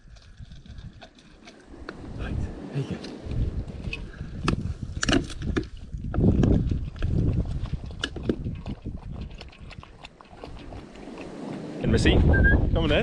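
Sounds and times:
dog eating from metal bowl: 5.4 - 11.4.

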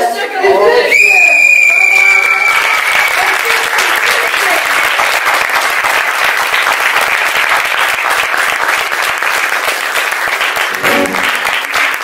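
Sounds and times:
audience applauding: 1.4 - 12.0
music: 10.8 - 11.5.

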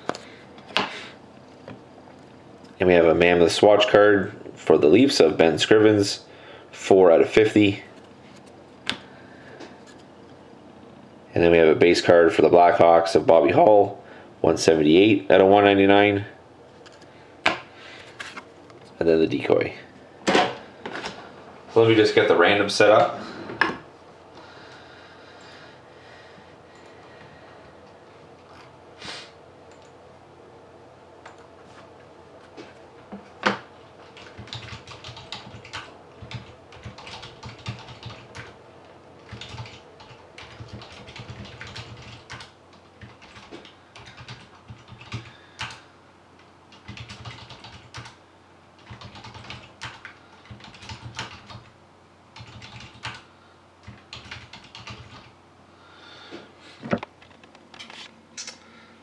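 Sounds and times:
typing on computer keyboard: 33.5 - 38.6, 39.2 - 45.8, 46.7 - 48.2, 48.8 - 51.7, 52.4 - 55.3.

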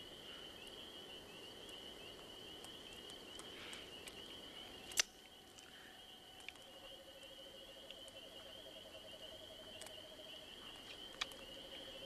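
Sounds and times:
crickets chirping: 0.0 - 12.0
sharp snap: 4.9 - 5.2.

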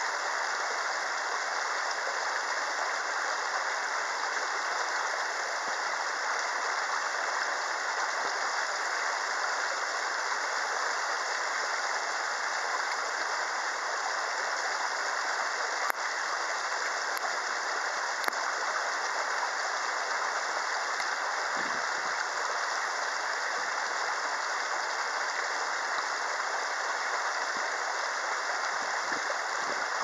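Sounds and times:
steady rushing hiss: 0.0 - 30.0
faint clicks: 18.2 - 18.4.

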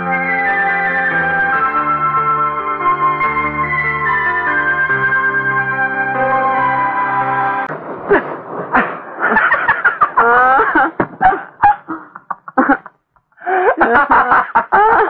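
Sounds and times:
high-pitched human laughter: 9.2 - 15.0.

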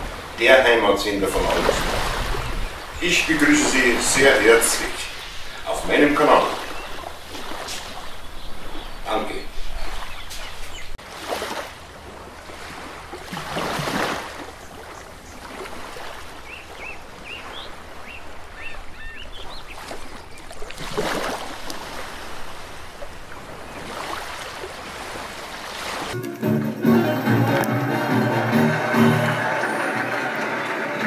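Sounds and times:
ocean waves breaking: 0.0 - 31.0
bird chirping: 16.4 - 20.4.

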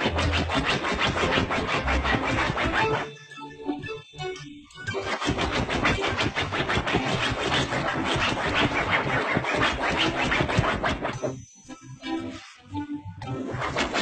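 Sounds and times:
dog paws scratching fabric cushion: 0.0 - 3.0, 5.1 - 11.2.

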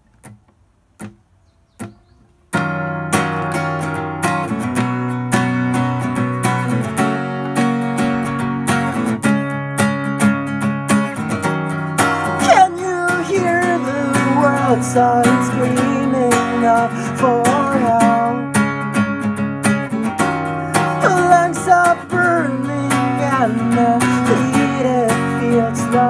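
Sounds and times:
acoustic guitar strumming: 1.0 - 26.0
man singing: 12.2 - 18.6, 20.1 - 26.0.

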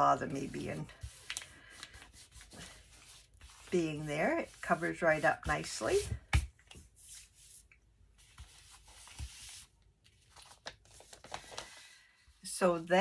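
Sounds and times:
paper envelope rustling: 8.2 - 12.0.

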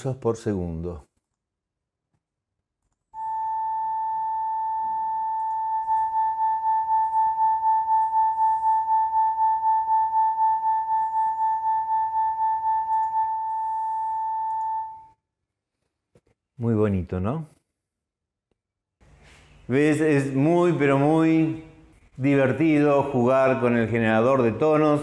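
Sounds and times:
steady sine tone: 3.2 - 15.2.

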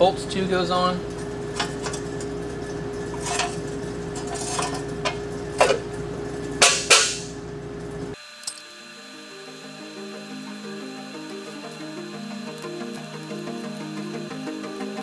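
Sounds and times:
steady hum: 0.0 - 15.0
steel plate clinking: 1.0 - 8.6
sharp metal knocks: 6.6 - 7.3
music: 8.6 - 15.0.

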